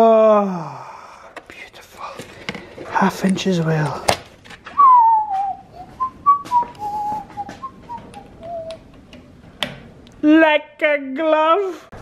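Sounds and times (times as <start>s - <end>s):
man whistling a tune: 4.8s - 8.8s.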